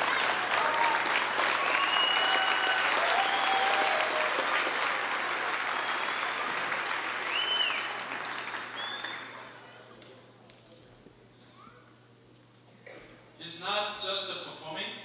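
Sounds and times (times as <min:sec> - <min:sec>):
audience applauding: 0:00.0 - 0:09.7
shrill cheers or whistles: 0:01.4 - 0:04.6, 0:05.6 - 0:09.4.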